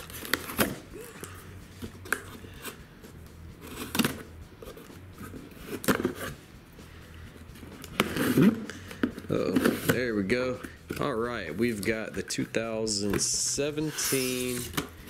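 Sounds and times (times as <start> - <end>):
knife slicing packing tape: 13.9 - 15.0.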